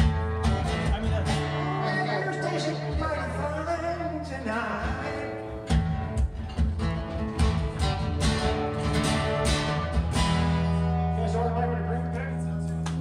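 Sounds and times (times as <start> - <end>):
strummed guitar chords: 0.0 - 13.0
man singing: 0.1 - 5.8.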